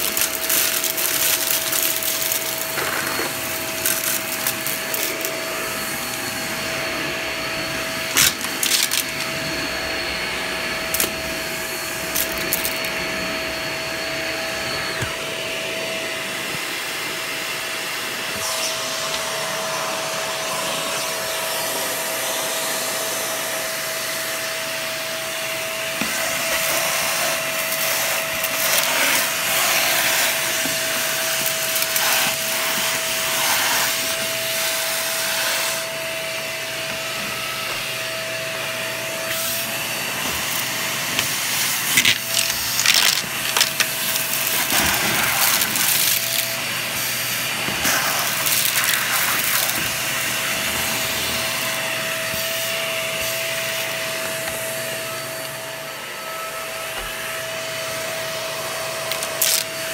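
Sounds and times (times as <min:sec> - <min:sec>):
debris clattering in vacuum: 0:00.0 - 0:06.2, 0:11.9 - 0:13.0, 0:40.1 - 0:46.6
vacuum motor whine: 0:00.0 - 0:59.9.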